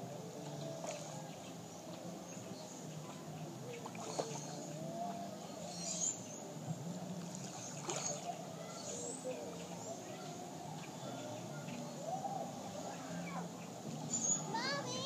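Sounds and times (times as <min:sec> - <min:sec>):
water lapping and sloshing: 0:00.0 - 0:15.0
water splashes: 0:00.4 - 0:02.1, 0:02.8 - 0:05.2, 0:06.2 - 0:15.0.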